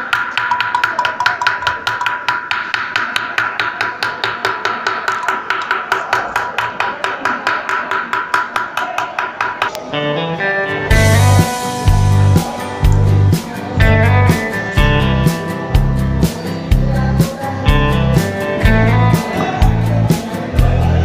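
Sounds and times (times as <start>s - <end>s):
rapid knocking: 0.0s - 9.7s.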